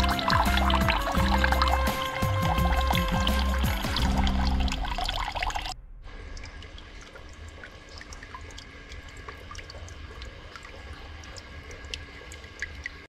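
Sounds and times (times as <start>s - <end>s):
fountain water trickling: 0.0s - 13.0s
low rumble: 2.5s - 9.6s.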